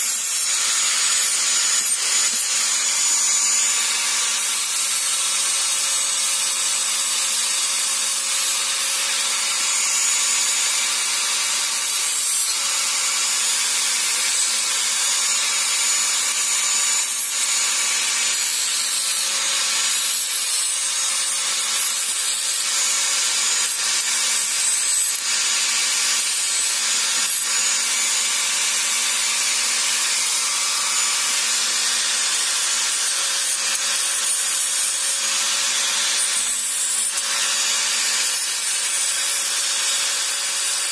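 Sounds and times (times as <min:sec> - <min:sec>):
angle grinder grinding steel: 0:00.0 - 0:40.9.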